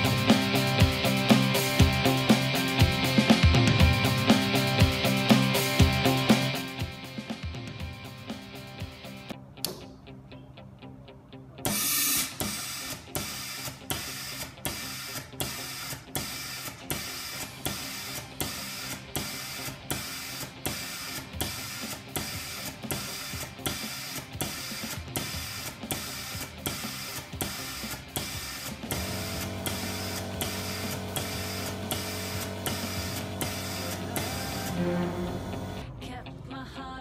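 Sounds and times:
rhythmic pulsing of air and mechanism: 11.7 - 35.8.

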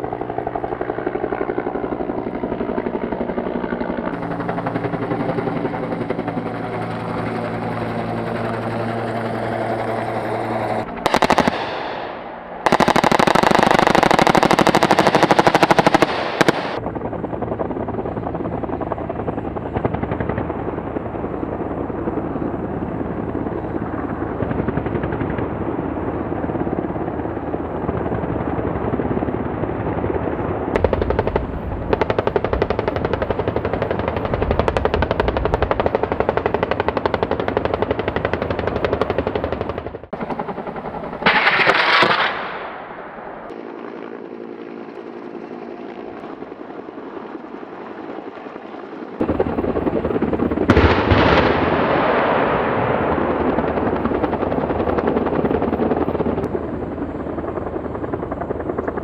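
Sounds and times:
helicopter engine and rotor hum: 0.0 - 59.0
helicopter gun firing bursts: 0.0 - 59.0.

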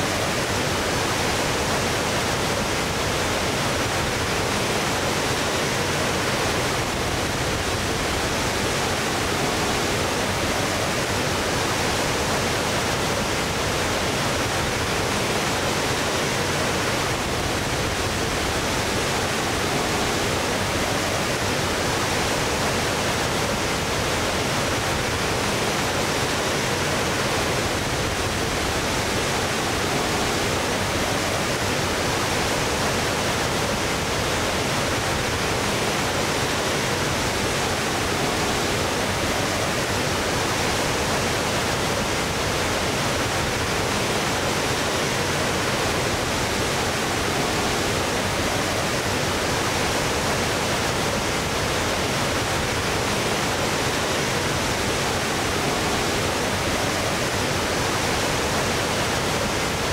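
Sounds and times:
waterfall rushing: 0.0 - 59.9.

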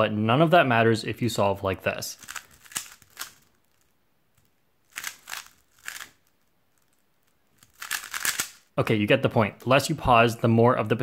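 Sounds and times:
puzzle cube plastic clicks: 2.2 - 8.7.

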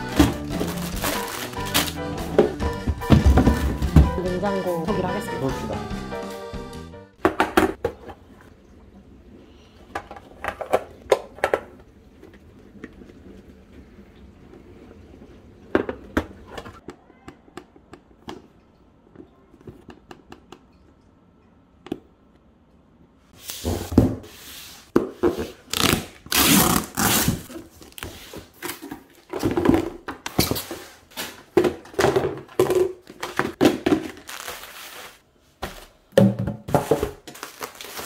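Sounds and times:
cardboard and bubble wrap crinkling: 0.0 - 4.2, 25.5 - 31.6, 33.0 - 36.0, 36.7 - 38.0.

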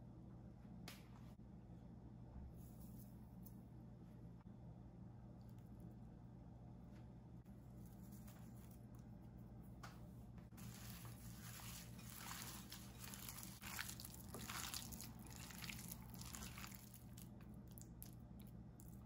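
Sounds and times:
wet rustling of hand mixing food: 10.5 - 19.0.

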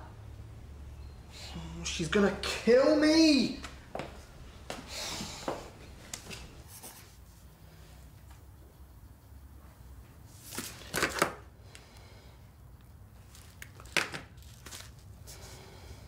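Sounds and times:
rustling and handling sounds: 6.0 - 8.5, 9.6 - 11.8, 12.8 - 15.6.

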